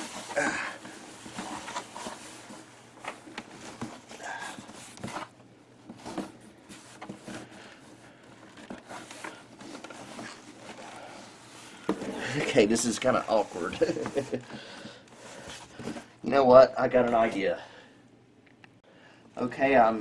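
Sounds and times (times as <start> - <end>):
cardboard box scraping and rustling: 0.0 - 7.7.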